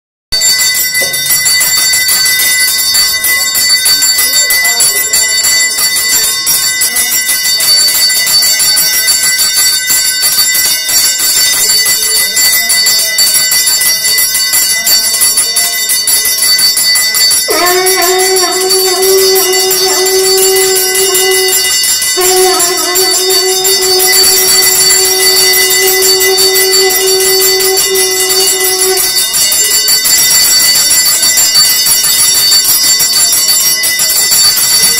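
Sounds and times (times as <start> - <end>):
temple bells ringing rapidly: 0.4 - 34.9
long blown notes: 17.5 - 29.5.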